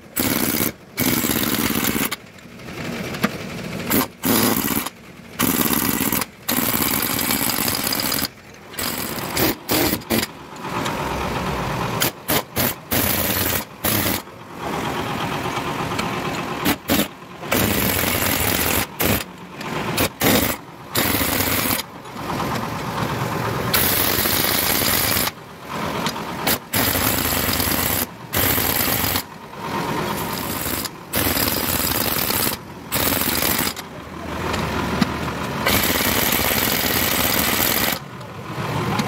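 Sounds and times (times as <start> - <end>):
pneumatic impact wrench hammering: 0.0 - 2.3, 3.1 - 11.0, 12.0 - 14.3, 16.3 - 21.9, 23.7 - 25.4, 26.0 - 33.8, 34.5 - 38.0.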